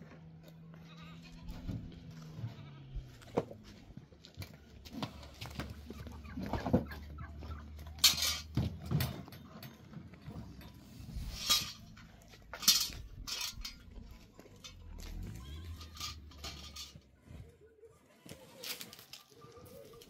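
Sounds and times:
livestock bleating: 0.7 - 3.2
knocks and clinks: 7.7 - 17.0.

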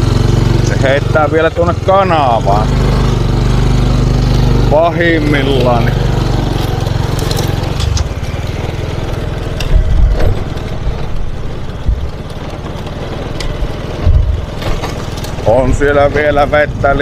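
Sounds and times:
moped engine running: 0.0 - 17.0
low thumps: 9.0 - 15.8.

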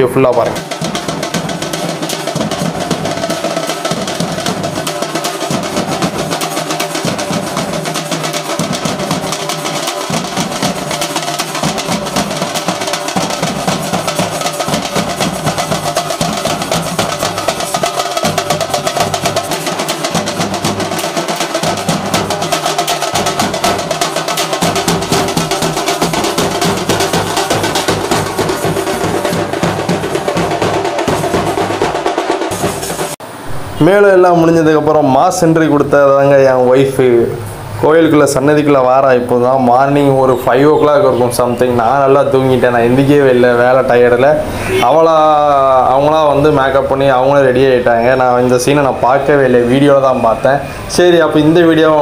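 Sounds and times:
music with fast dense drumming: 0.0 - 33.8.

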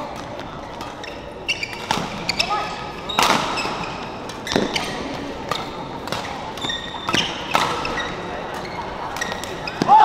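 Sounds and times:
rackets hitting shuttlecock: 0.0 - 10.0
shoes squeaking: 0.4 - 10.0.

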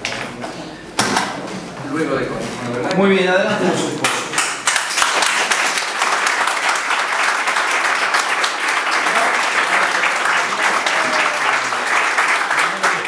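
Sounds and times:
crowd applauding: 4.2 - 13.0.

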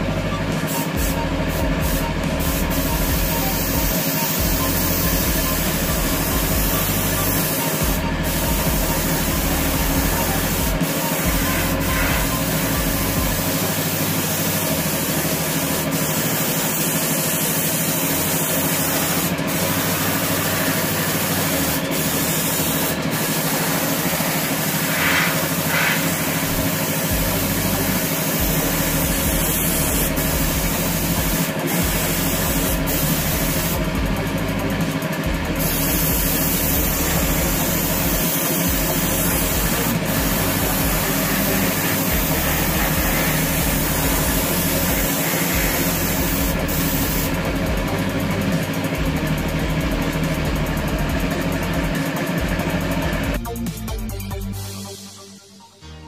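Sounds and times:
machine hum: 0.0 - 53.4
even hiss: 18.2 - 30.2.

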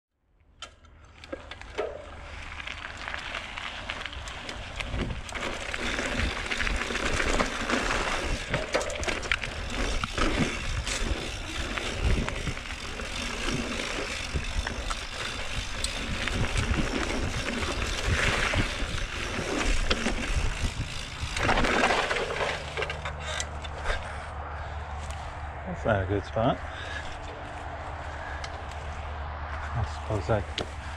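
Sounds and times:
bike tyres on dirt trail: 0.4 - 30.9
bike rattling and knocking: 1.0 - 24.2.

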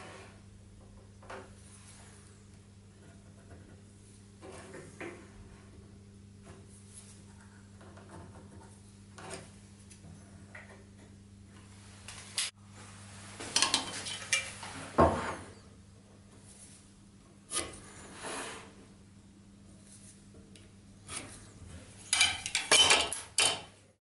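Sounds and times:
tools clicking and clinking: 22.1 - 23.7.

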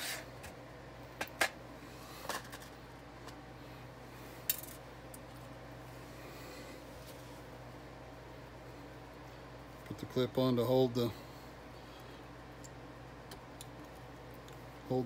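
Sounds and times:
faint low hum: 0.0 - 15.0
small metal parts clinking: 4.4 - 5.2.

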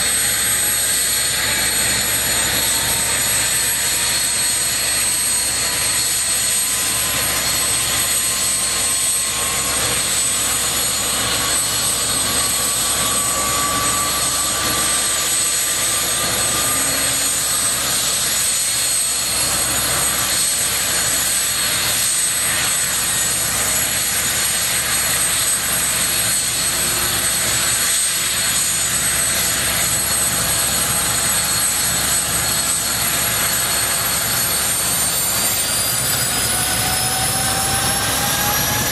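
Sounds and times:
helicopter rotors turning: 0.0 - 38.9
turbine whine: 0.0 - 38.9.

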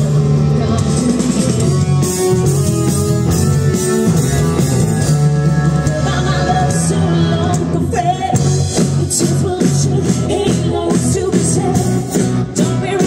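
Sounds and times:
drums: 0.0 - 13.0
electric guitars: 0.0 - 13.0
woman singing: 5.5 - 13.0.

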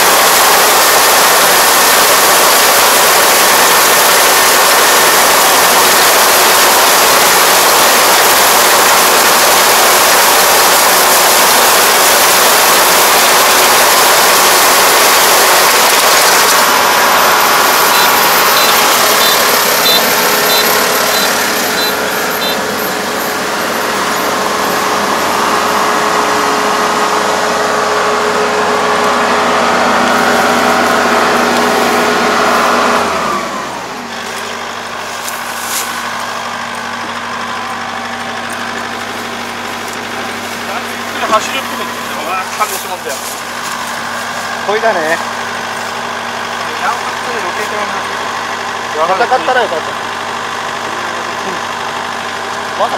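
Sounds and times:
combine harvester engine running: 0.0 - 52.9
high beeps: 17.7 - 22.8.

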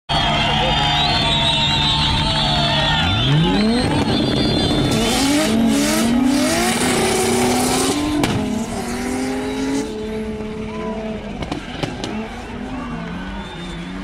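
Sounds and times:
car engines revving: 0.2 - 14.0
sharp crack: 6.7 - 8.7.

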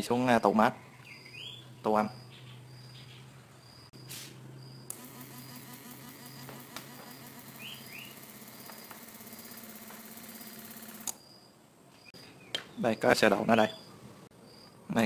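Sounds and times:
bird chirping: 0.3 - 4.1, 7.0 - 9.0, 11.2 - 14.8
inverter pulsing buzz: 4.7 - 11.2.

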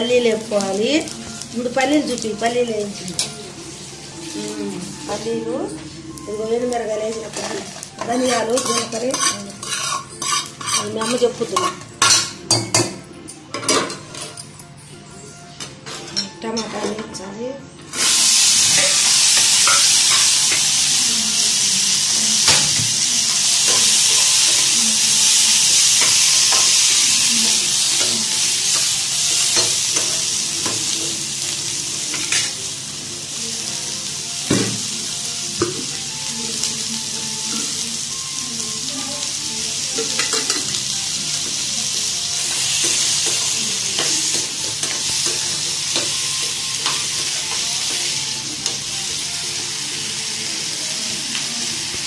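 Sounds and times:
tomatoes sizzling in a pan: 0.0 - 13.0, 17.9 - 52.0
metal spoon scraping a pan: 7.3 - 12.4.

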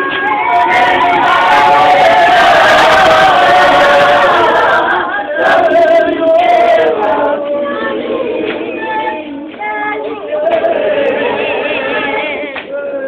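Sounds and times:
congregation singing a hymn: 0.0 - 13.0.

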